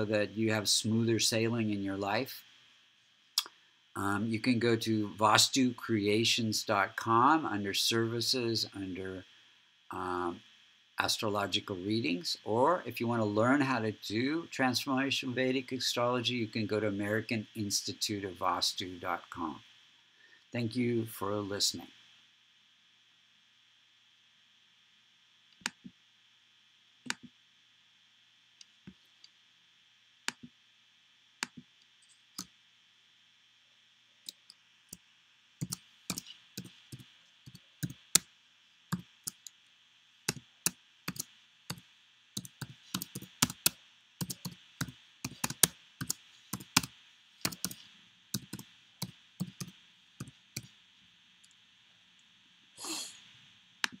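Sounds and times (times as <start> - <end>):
typing on computer keyboard: 35.6 - 38.0, 42.4 - 47.8, 48.4 - 48.6, 49.4 - 49.7.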